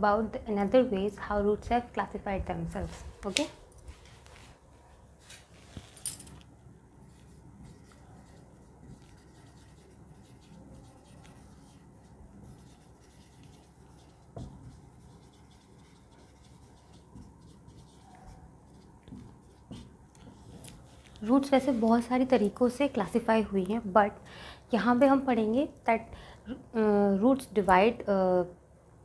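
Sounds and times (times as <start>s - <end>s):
marker squeaking on whiteboard: 12.5s - 19.9s.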